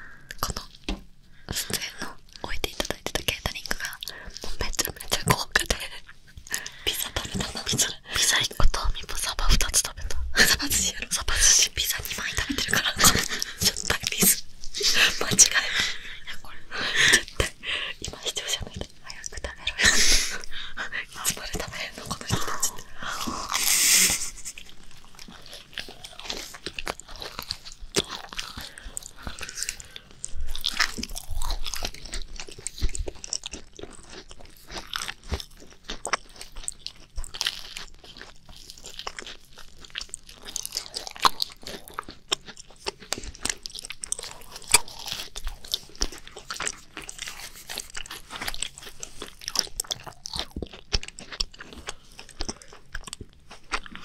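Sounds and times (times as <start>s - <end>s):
soft chewing: 0.0s - 54.0s
crisp shells crunching: 21.2s - 54.0s.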